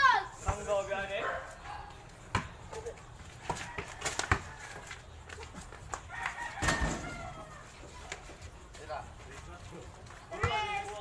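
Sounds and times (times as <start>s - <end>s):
basketball bouncing on concrete: 2.2s - 5.0s, 10.3s - 11.0s.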